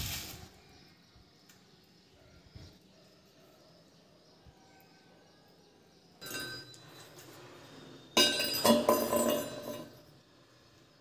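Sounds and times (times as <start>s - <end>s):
metal fitting clinking on ceramic: 6.2s - 7.0s, 8.2s - 9.9s.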